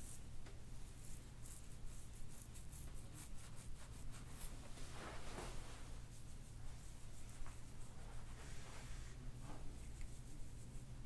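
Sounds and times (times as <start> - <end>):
low steady hum: 0.0 - 11.0
hands rubbing over clothing: 3.2 - 10.9.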